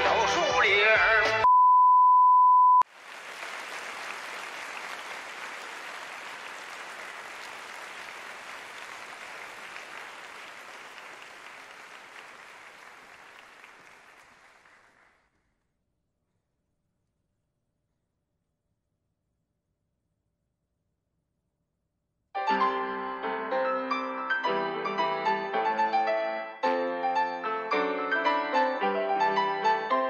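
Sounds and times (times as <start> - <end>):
large audience applauding: 2.8 - 15.4.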